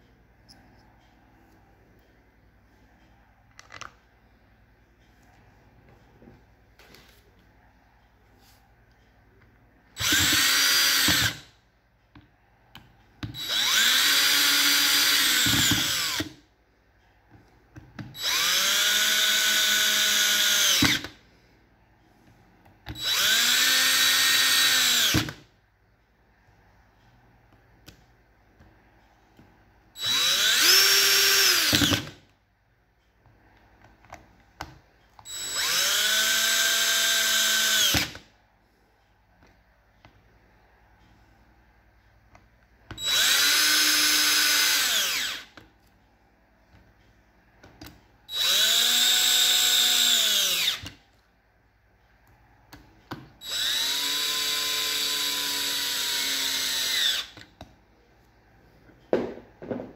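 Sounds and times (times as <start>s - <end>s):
power screwdriver whining: 10.0s - 11.4s, 30.0s - 32.2s, 43.0s - 45.4s, 48.3s - 51.0s.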